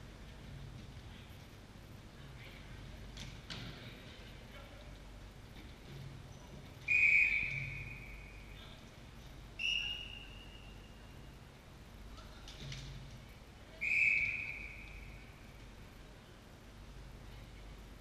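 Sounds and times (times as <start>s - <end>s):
whistle blasts echoing in a hall: 6.8s - 8.5s, 9.6s - 11.2s, 13.7s - 15.6s.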